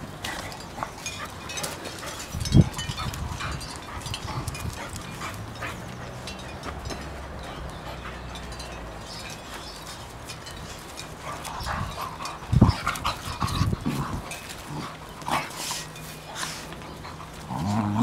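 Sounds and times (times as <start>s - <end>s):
dogs growling and grunting: 11.1s - 18.0s.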